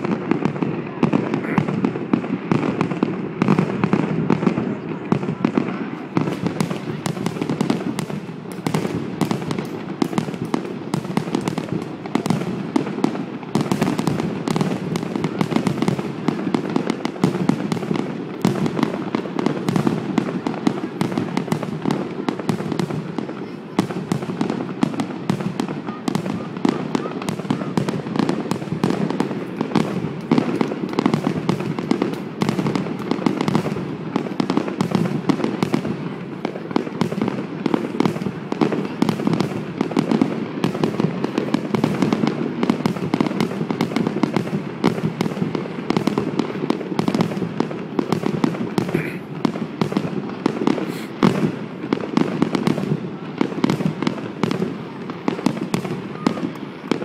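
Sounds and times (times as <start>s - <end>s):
fireworks banging: 0.0s - 57.0s.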